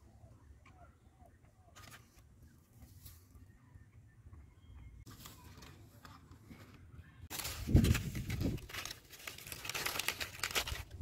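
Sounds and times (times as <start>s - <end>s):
leaves rustling and crinkling: 5.1s - 11.0s.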